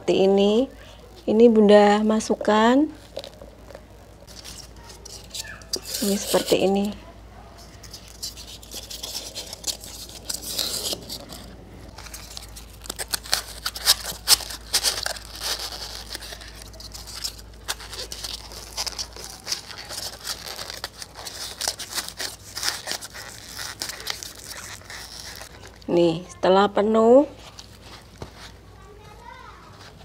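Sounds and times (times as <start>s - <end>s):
styrofoam squeaky crunching: 4.2s - 7.0s, 7.6s - 25.9s.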